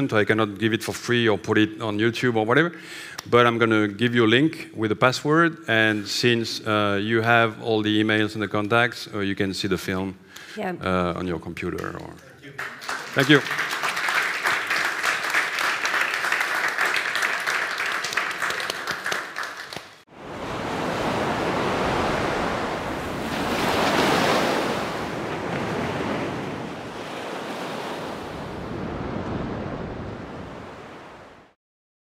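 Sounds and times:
audience applauding: 12.4s - 20.0s
sea waves washing in: 20.1s - 31.6s.

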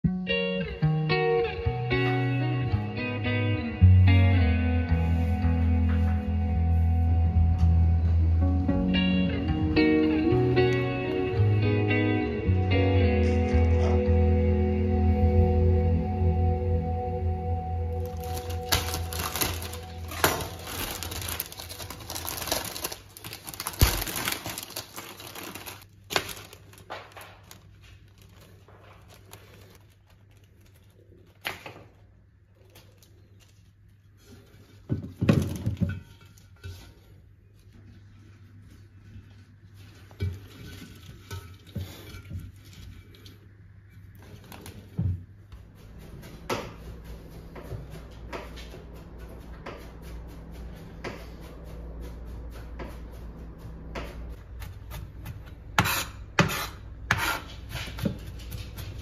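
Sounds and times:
low steady hum: 0.1s - 59.0s
paper rustling and crinkling: 18.0s - 36.0s, 44.1s - 45.1s.

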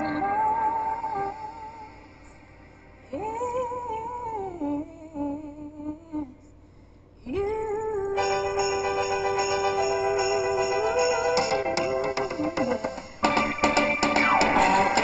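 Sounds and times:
pop song playing: 8.2s - 15.0s.

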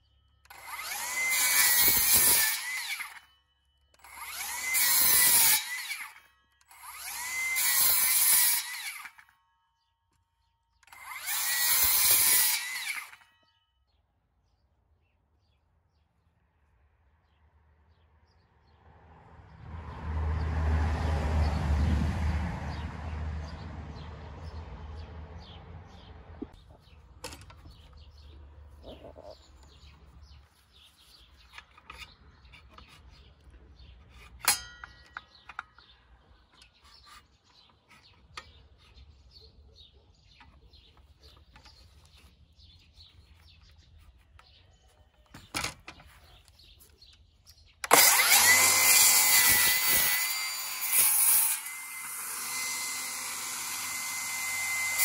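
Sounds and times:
circular saw whining: 0.4s - 9.3s, 10.8s - 13.4s, 47.8s - 55.0s
saw blade cutting wood: 0.4s - 9.4s, 10.8s - 13.5s, 26.8s - 36.0s, 36.6s - 39.2s, 45.9s - 55.0s.

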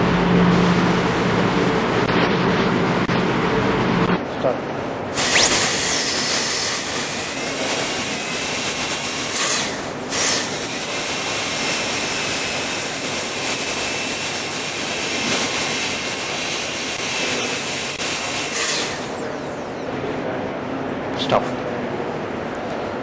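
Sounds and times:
dental drill whining: 5.2s - 19.7s.

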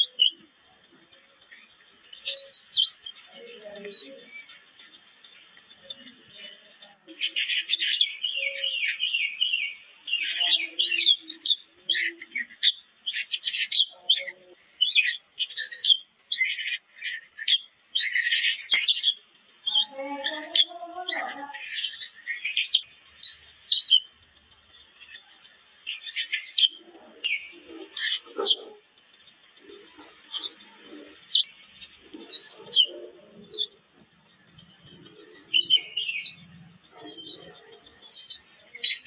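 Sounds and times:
chicks peeping: 0.0s - 39.0s
low rough bird call: 25.1s - 39.0s.

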